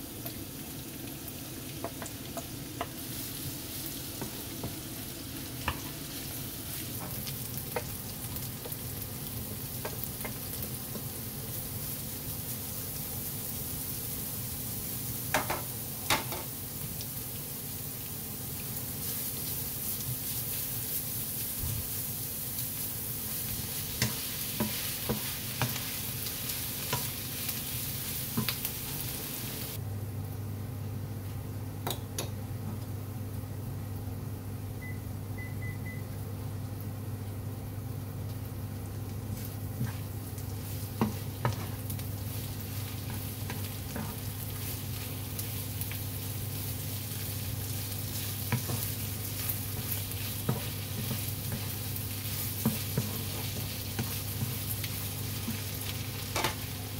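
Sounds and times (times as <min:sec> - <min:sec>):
meat and onion sizzling in pan: 0:00.0 - 0:29.8, 0:35.6 - 0:56.9
wooden spatula scraping pan: 0:39.4 - 0:41.8, 0:48.1 - 0:54.7.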